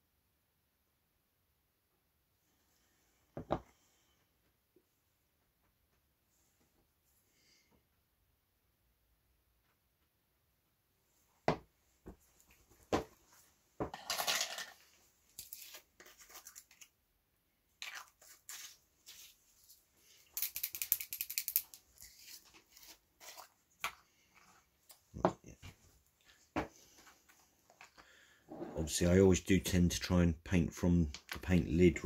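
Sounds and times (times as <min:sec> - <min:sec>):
scratchy scraping of jars and lids: 0:28.5 - 0:28.9.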